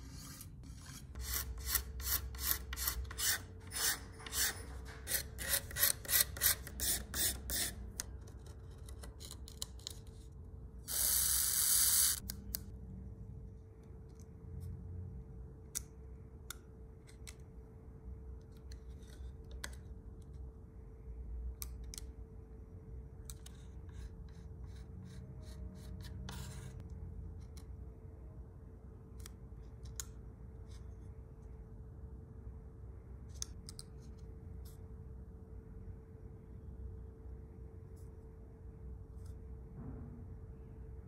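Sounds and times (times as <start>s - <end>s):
rasping filing strokes: 0.0s - 7.8s.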